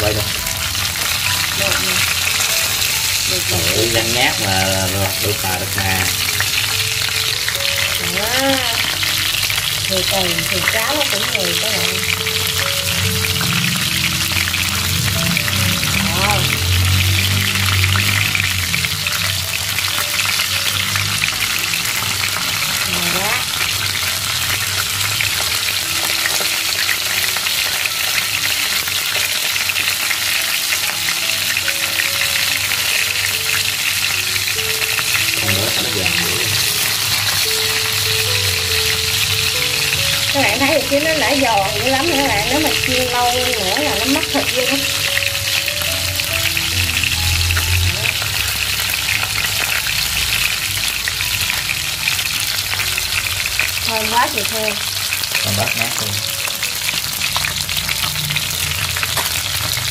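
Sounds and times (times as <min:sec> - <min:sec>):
fish sizzling in hot oil: 0:00.0 - 0:59.9.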